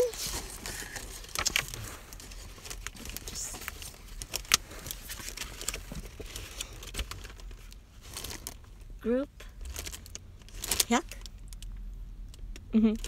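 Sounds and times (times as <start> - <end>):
photobook pages turning: 0.0 - 7.4.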